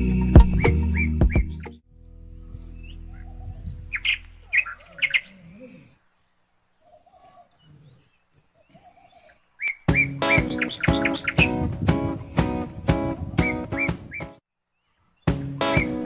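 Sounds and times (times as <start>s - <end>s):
high bird chirps: 2.8s - 5.4s, 6.9s - 11.7s, 13.4s - 16.0s.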